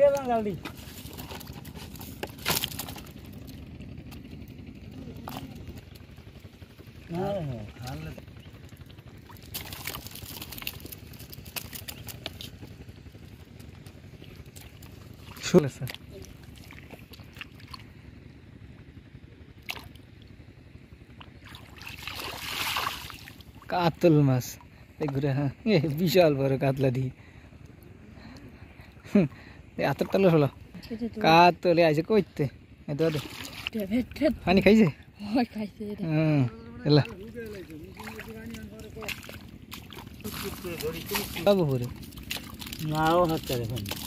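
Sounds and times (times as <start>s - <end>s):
splashing in muddy water: 0.0s - 18.0s, 19.6s - 20.3s, 21.1s - 23.7s, 32.9s - 34.3s, 36.9s - 44.0s
water drips and plops: 9.2s - 12.5s, 37.0s - 44.0s.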